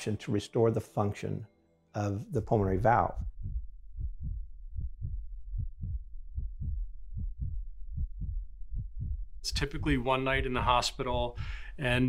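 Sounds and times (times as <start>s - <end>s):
heartbeat thumps: 2.4s - 11.7s.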